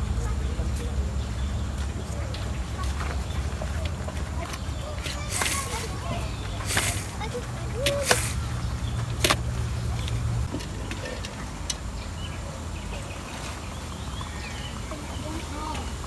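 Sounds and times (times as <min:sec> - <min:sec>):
road traffic rumble: 0:00.0 - 0:16.0
sharp clicks and knocks: 0:09.0 - 0:11.9.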